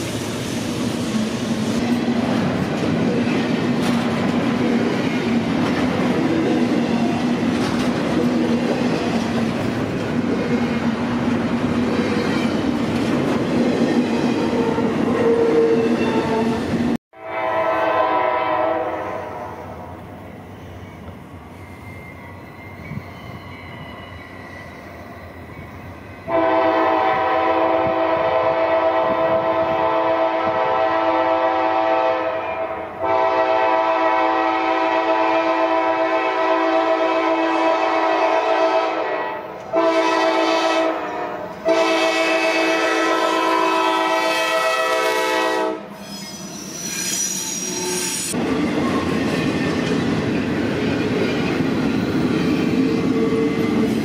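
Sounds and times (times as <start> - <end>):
train wheels rumbling on rail: 0.0 - 17.0, 20.0 - 54.0
locomotive air horn: 17.2 - 19.7, 26.3 - 46.0
high squeal: 20.4 - 25.9, 46.0 - 48.4.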